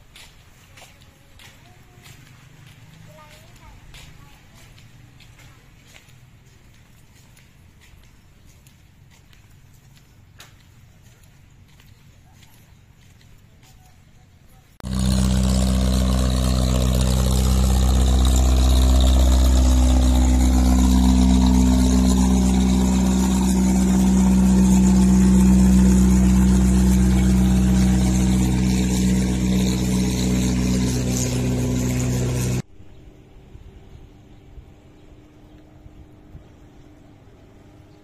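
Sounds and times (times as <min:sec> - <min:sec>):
boat engine droning: 0:14.8 - 0:32.7.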